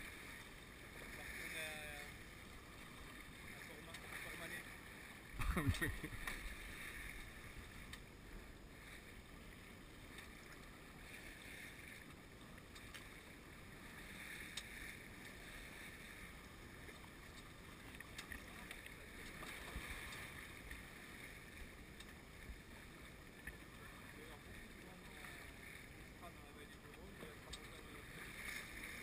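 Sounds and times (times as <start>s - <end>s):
water rushing along hull: 0.0s - 29.0s
wind: 0.0s - 29.0s
faint ticks: 3.8s - 4.2s, 7.8s - 8.1s, 12.0s - 13.3s, 14.3s - 15.4s, 16.4s - 20.8s, 21.9s - 22.6s, 26.7s - 27.8s.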